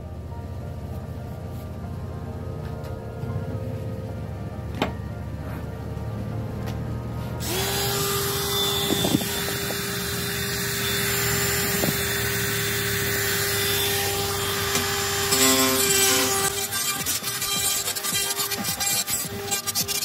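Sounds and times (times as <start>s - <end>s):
rotary tool whining: 7.4s - 20.0s
grinding stone on steel: 14.7s - 20.0s.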